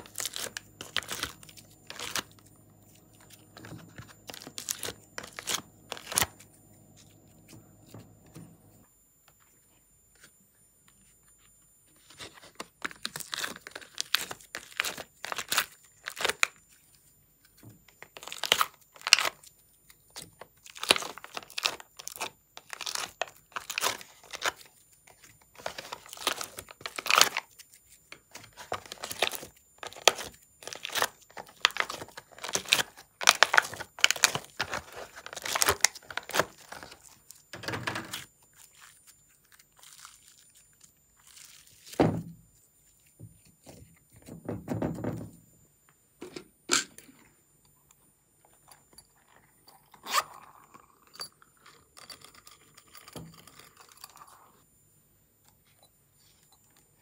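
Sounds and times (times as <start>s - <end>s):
slime crackling and crinkling: 0.0s - 7.2s, 12.0s - 42.0s.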